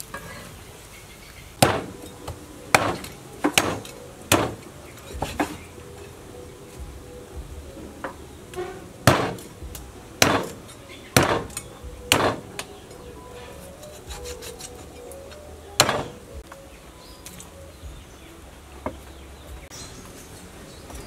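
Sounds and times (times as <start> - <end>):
cleaver chopping meat and bone: 1.6 - 4.6, 9.1 - 10.6, 11.2 - 12.4, 15.8 - 16.2.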